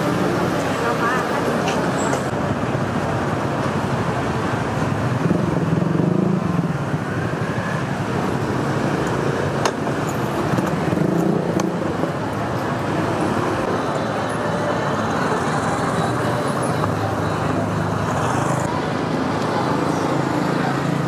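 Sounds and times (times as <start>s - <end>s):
traffic rumble: 0.0s - 21.0s
vehicle engine: 0.0s - 21.0s.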